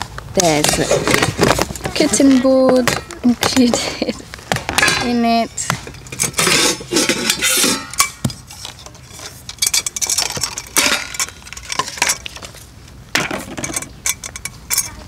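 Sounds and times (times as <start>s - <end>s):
steel pans and plates clinking: 4.8s - 12.2s.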